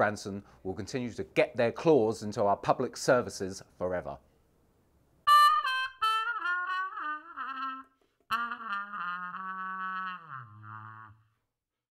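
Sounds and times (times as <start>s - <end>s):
brass music: 5.3s - 11.2s.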